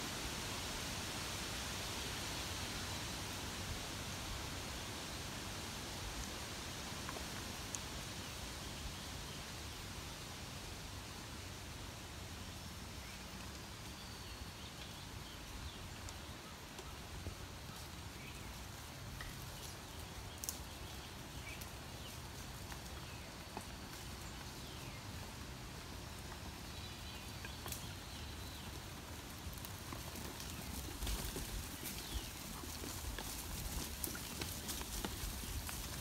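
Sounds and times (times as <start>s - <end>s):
sheep hooves on dirt path: 6.5s - 9.3s, 13.0s - 36.0s.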